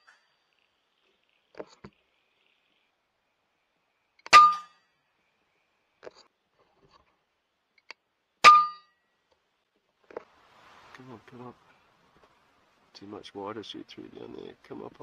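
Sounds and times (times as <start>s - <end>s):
brief metallic ring: 4.3s - 4.9s, 8.4s - 9.0s.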